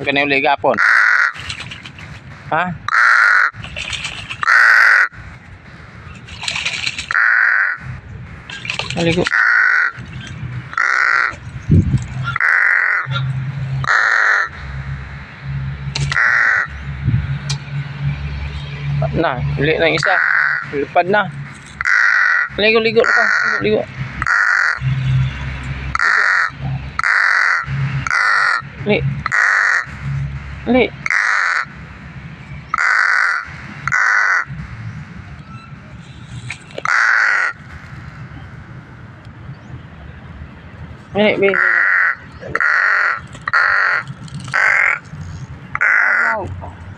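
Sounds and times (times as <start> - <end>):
crow cawing: 0.7 - 1.7, 2.9 - 3.6, 4.3 - 5.2, 7.1 - 7.9, 9.2 - 10.1, 10.7 - 11.4, 12.2 - 14.8, 16.0 - 16.8, 20.0 - 20.8, 21.8 - 24.9, 25.9 - 30.0, 31.0 - 31.8, 32.7 - 34.6, 36.8 - 38.3, 41.4 - 46.5.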